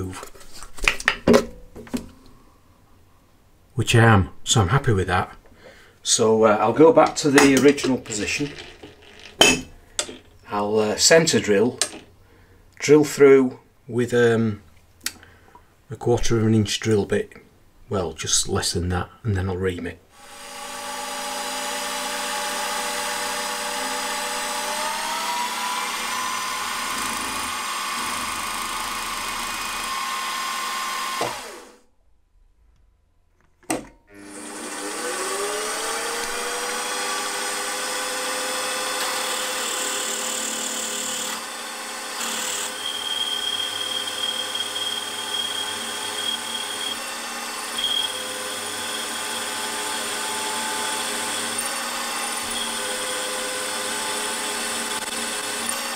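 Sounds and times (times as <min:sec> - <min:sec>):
drill cutting metal: 0:07.4 - 0:10.1, 0:20.2 - 0:31.8, 0:34.2 - 0:55.9
milling machine motor whine: 0:20.2 - 0:31.7, 0:34.2 - 0:55.9.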